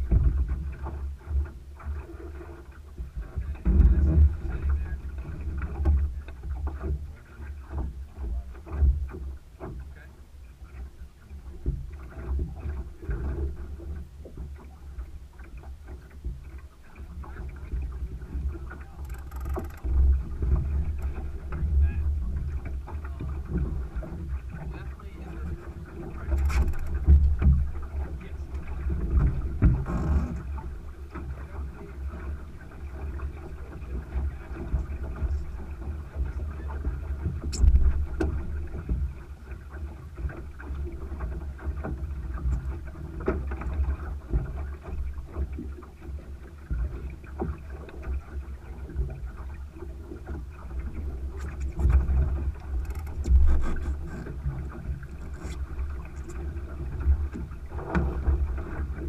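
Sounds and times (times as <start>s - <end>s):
water rushing along hull: 0.0s - 59.0s
rigging clicks and knocks: 18.3s - 21.8s, 26.2s - 27.7s, 51.4s - 56.4s.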